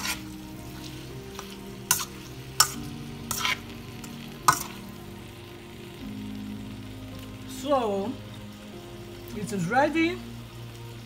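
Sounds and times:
utensil scraping frying pan: 0.0s - 5.0s
food sizzling: 0.0s - 11.0s.

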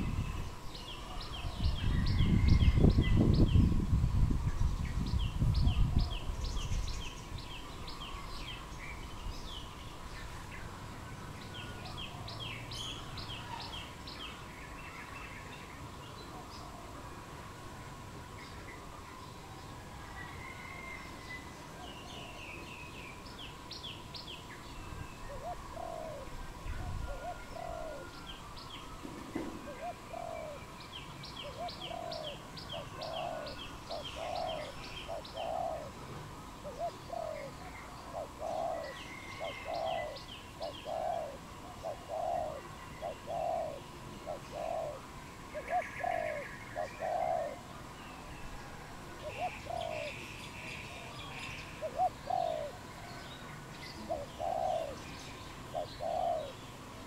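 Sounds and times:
small birds chirping: 21.1s - 48.6s, 49.2s - 57.0s
dove cooing: 25.3s - 30.7s, 31.3s - 47.7s, 49.1s - 53.2s, 53.9s - 57.0s.

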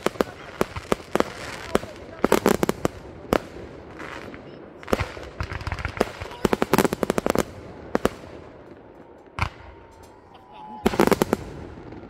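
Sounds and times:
firework bangs: 0.0s - 10.0s, 10.8s - 12.0s
crackling firework volley: 0.0s - 12.0s.

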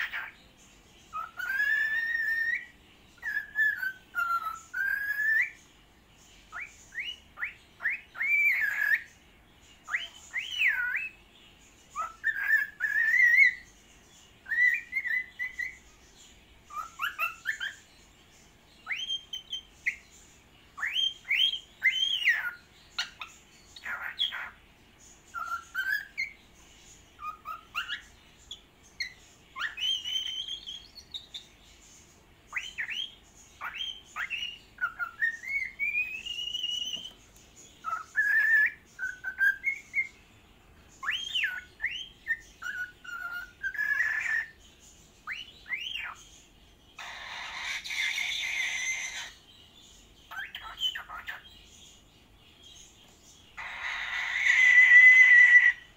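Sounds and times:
cockatiel whistling: 1.1s - 5.6s, 6.5s - 9.1s, 9.9s - 11.2s, 12.0s - 13.6s, 14.4s - 15.8s, 16.7s - 17.8s, 18.8s - 20.0s, 20.8s - 24.5s, 25.3s - 26.4s, 27.2s - 28.1s, 29.0s - 31.4s, 32.5s - 37.2s, 37.8s - 40.1s, 41.0s - 44.6s, 45.2s - 46.2s, 47.0s - 49.4s, 50.3s - 51.4s, 53.6s - 55.9s.

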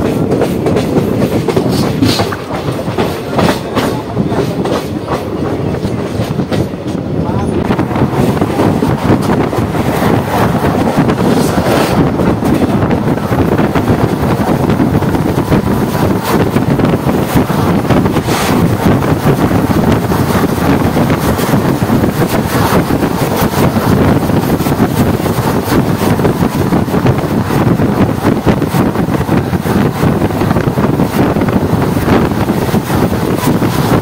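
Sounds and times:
train rumbling on rails: 0.0s - 34.0s
wind buffeting microphone: 0.0s - 34.0s.

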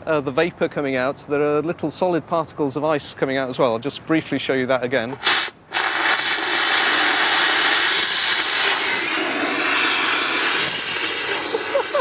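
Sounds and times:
fire extinguisher hissing: 5.2s - 12.0s.

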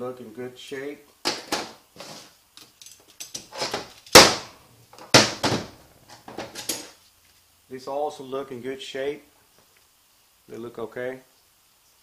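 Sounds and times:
sharp metal knocks: 4.1s - 5.7s
metal clutch parts clattering: 6.2s - 6.9s.

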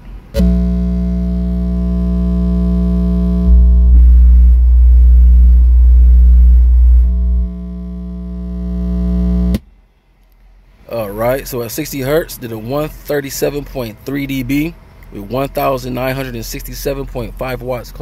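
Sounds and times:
low bass test tone: 0.0s - 9.8s.

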